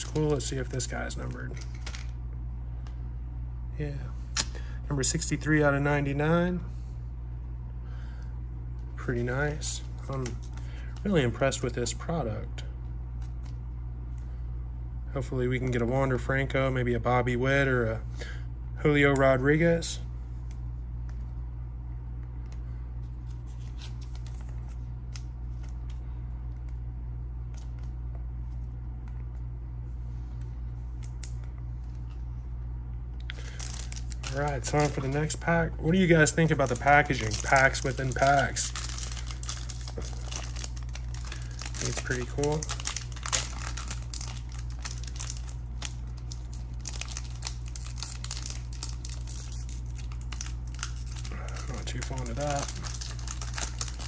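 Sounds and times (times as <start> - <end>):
steady low hum: 0.0 - 54.0
plastic sleeves clicking and crinkling: 33.2 - 35.3, 36.5 - 54.0.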